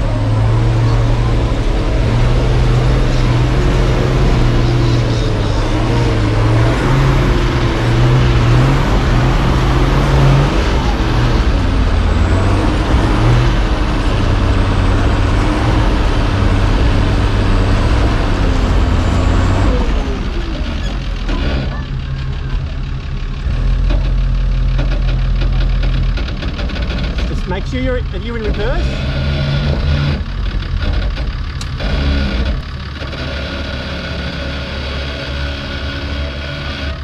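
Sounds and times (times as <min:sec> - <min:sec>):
engine working hard uphill: 0:00.0 - 0:37.0.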